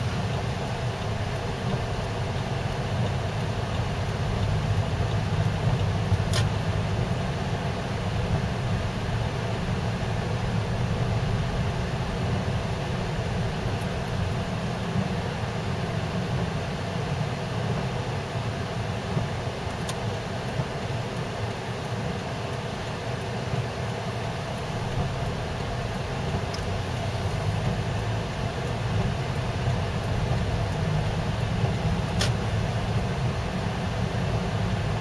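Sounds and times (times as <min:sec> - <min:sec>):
tyres on slushy road: 0:24.6 - 0:35.0.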